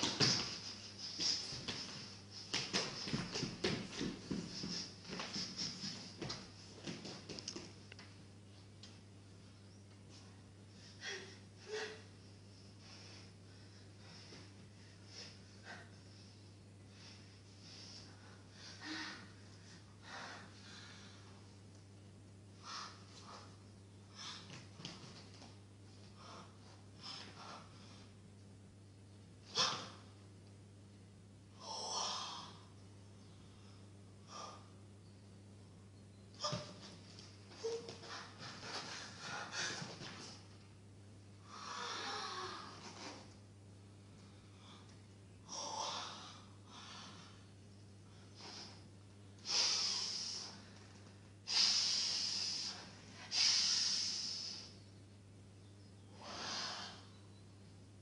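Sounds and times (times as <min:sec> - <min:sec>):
steady low hum: 0:00.0 - 0:58.0
person breathing forcefully: 0:49.4 - 0:50.6.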